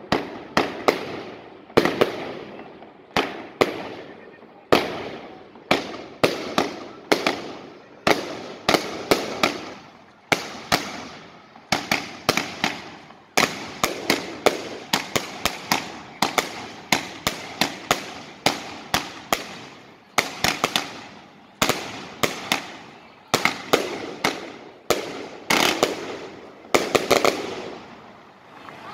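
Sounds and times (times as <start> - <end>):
firework shells bursting: 5.7 - 27.9.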